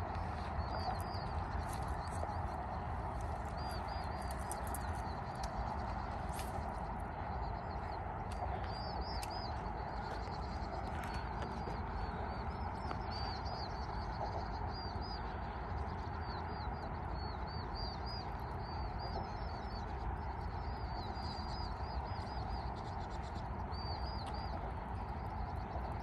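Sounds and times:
small birds chirping: 0:00.0 - 0:26.0
steady rushing background noise: 0:00.0 - 0:26.0.

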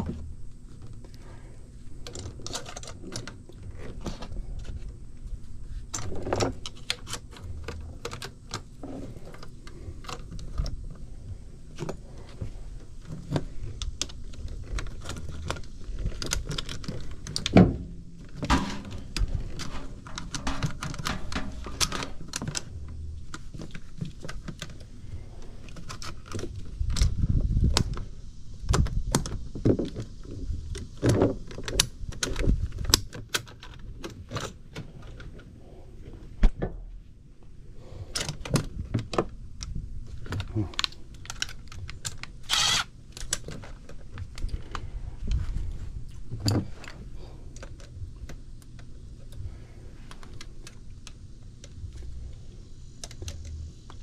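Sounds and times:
heavier thumps: 0:17.5 - 0:19.4.

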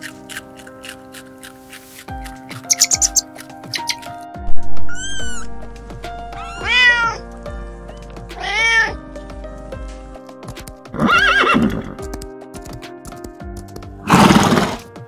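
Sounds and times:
background music: 0:00.0 - 0:15.0
kitten meowing: 0:04.8 - 0:05.6, 0:06.4 - 0:07.3, 0:08.4 - 0:09.0
horse whinnying: 0:06.4 - 0:07.2, 0:11.0 - 0:12.0, 0:14.1 - 0:14.8.

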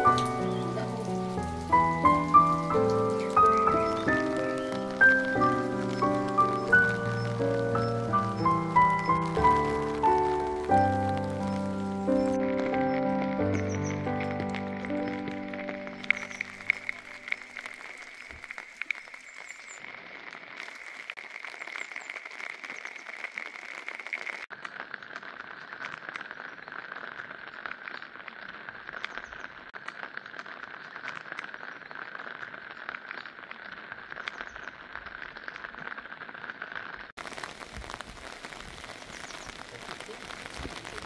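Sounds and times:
small crackling clicks: 0:00.0 - 0:41.0.

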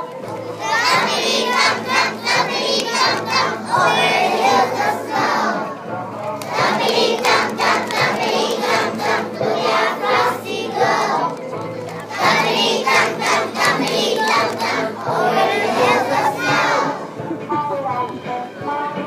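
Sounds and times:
backing music: 0:00.0 - 0:19.0
children singing together: 0:00.5 - 0:05.8, 0:06.4 - 0:11.4, 0:12.0 - 0:17.2.

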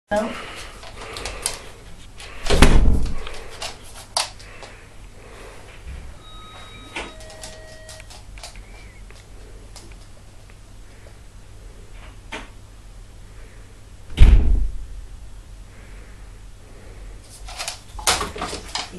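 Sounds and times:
heavy thump: 0:02.4 - 0:03.2.

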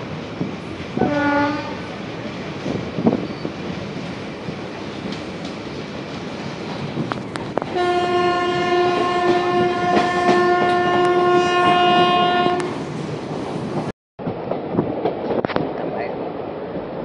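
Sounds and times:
train rumbling: 0:00.0 - 0:17.0
train horn blast: 0:01.0 - 0:01.8, 0:07.7 - 0:12.8.

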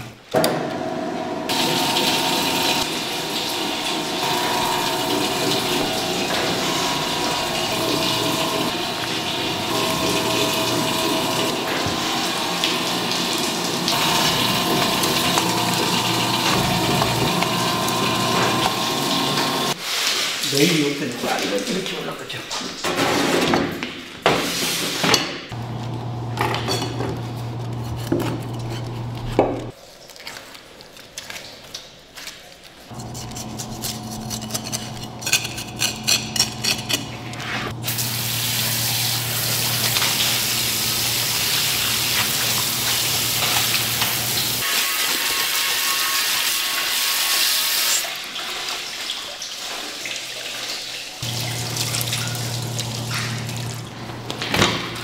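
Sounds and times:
low machine hum: 0:01.1 - 0:19.8, 0:25.6 - 0:29.7, 0:32.9 - 0:44.6, 0:51.2 - 0:55.0
dishes and utensils clattering: 0:26.4 - 0:29.8, 0:32.9 - 0:37.7
running water hiss: 0:37.8 - 0:53.8.

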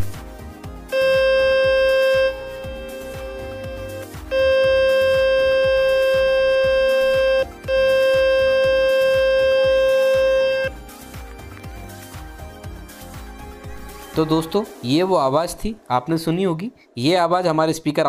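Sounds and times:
steady tone from phone speaker: 0:01.0 - 0:10.7.

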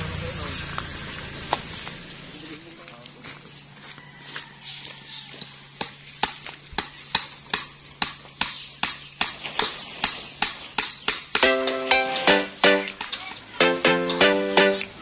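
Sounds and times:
hand tool striking wooden block: 0:05.8 - 0:11.5.

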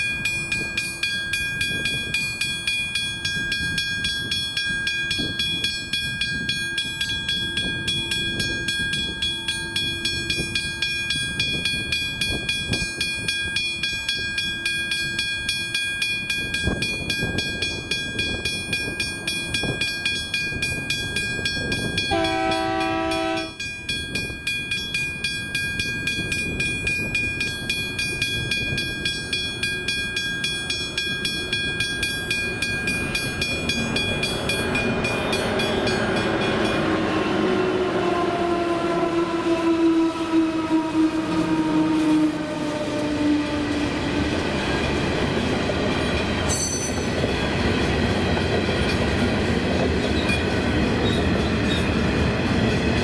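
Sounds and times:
train wagons rolling by: 0:00.0 - 0:39.3, 0:40.6 - 0:53.0
locomotive horn: 0:22.1 - 0:23.6, 0:36.0 - 0:44.6.

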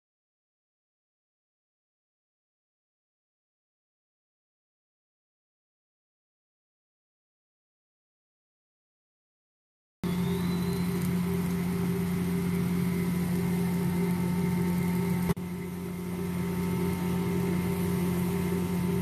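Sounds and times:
mechanical hum: 0:10.0 - 0:19.0.

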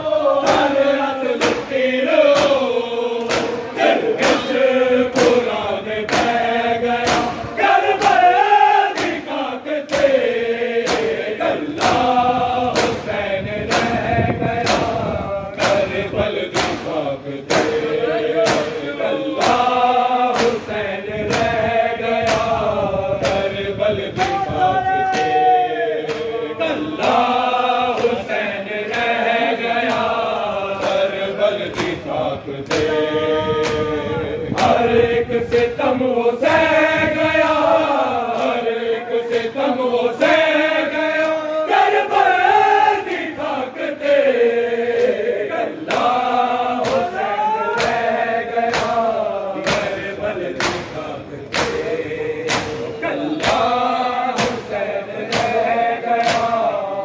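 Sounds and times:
men chanting in unison: 0:00.0 - 0:57.0
hands slapping chests: 0:02.3 - 0:08.3, 0:09.9 - 0:11.2, 0:14.6 - 0:15.0, 0:16.5 - 0:20.7, 0:46.8 - 0:47.2, 0:47.8 - 0:50.0, 0:50.6 - 0:56.7.

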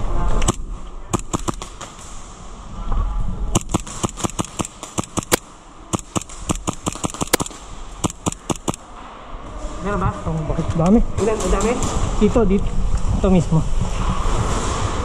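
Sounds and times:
airsoft gun shots: 0:00.4 - 0:02.3, 0:03.5 - 0:08.9.

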